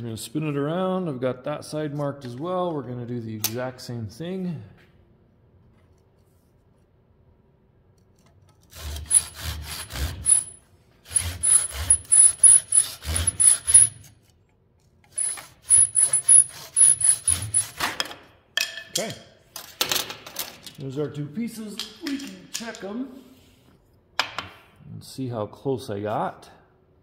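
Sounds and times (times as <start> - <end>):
pull saw cutting wood: 8.6 - 14.1, 15.1 - 17.9.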